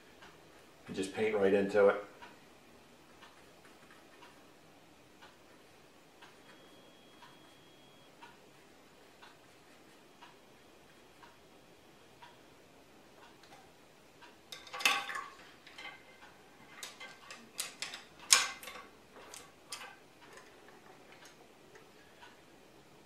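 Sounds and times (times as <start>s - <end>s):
painting tools clicking and tapping: 14.5s - 21.9s.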